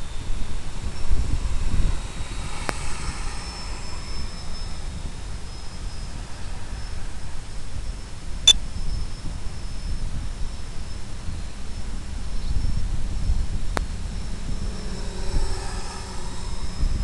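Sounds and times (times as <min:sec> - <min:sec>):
model aircraft rushing noise: 0:14.3 - 0:17.0.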